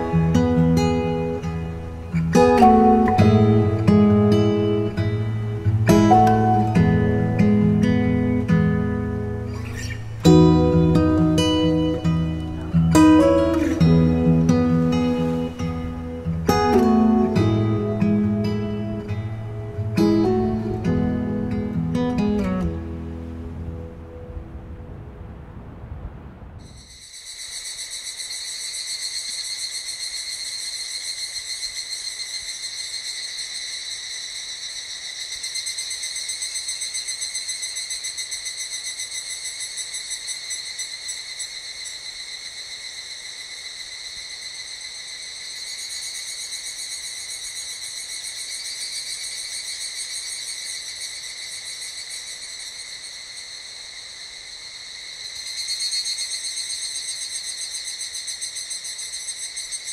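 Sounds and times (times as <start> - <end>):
insects buzzing: 0.0 - 25.4, 26.1 - 59.9.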